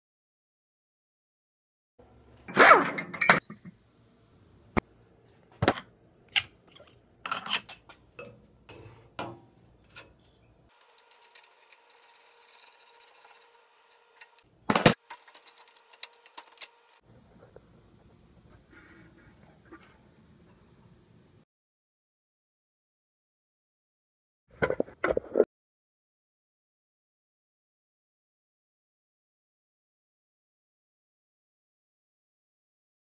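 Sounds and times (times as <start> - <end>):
metal clicks and clanks: 7.2 - 17.0.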